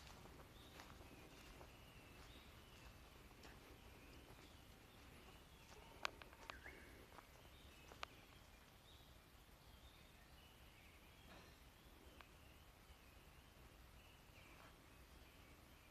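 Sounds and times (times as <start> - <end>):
faint bird calls: 0.0 - 8.8.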